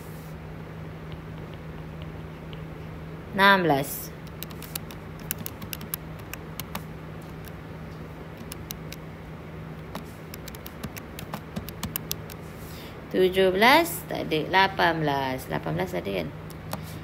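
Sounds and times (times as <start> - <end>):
steady low hum: 0.0 - 17.0
light tapping clicks: 4.2 - 7.6, 8.4 - 9.0, 9.9 - 12.4.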